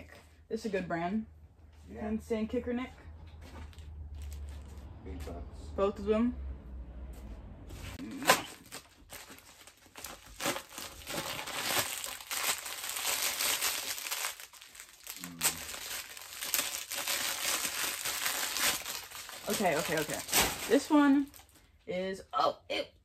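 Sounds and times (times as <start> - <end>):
plastic bag crinkling: 8.0 - 21.7.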